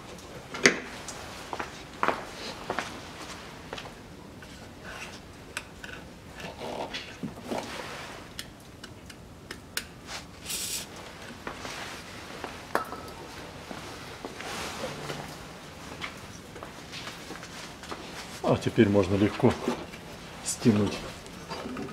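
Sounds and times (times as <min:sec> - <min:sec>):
aerosol spray hiss: 0:10.4 - 0:10.9.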